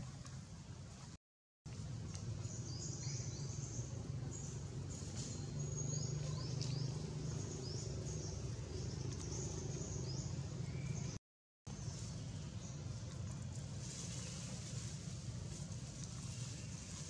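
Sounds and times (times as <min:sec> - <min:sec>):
steady low rumble: 0:01.7 - 0:17.0
bird chirping: 0:02.4 - 0:11.2.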